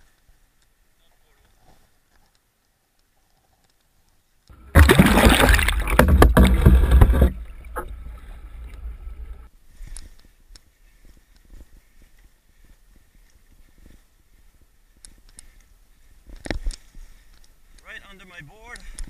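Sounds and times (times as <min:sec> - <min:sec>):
underwater rumble: 0:04.5 - 0:09.5
water splashing: 0:04.5 - 0:09.5.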